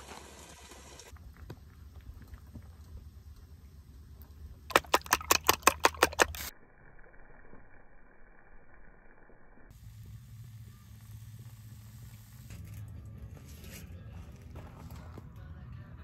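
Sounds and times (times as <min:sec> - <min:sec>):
fork beating eggs in a bowl: 0:04.7 - 0:06.5.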